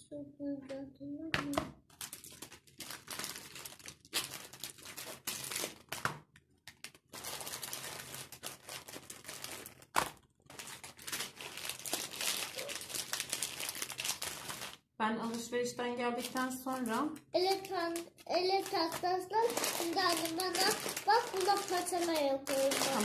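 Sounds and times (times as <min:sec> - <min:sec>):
plastic packaging crinkling: 0:01.9 - 0:15.5, 0:16.1 - 0:23.0
cloth wiping packaging: 0:10.5 - 0:14.8, 0:16.2 - 0:23.0.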